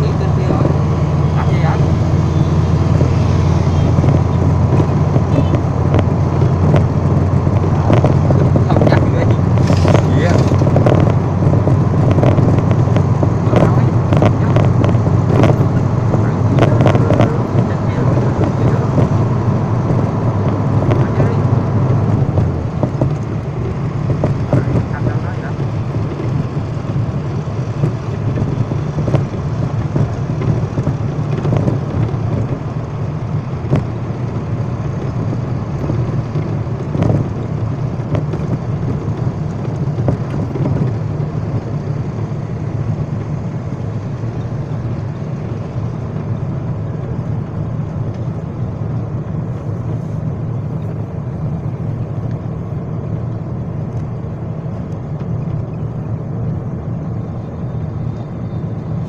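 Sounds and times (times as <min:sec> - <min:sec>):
engine and road rumble: 0:00.0 - 0:59.0.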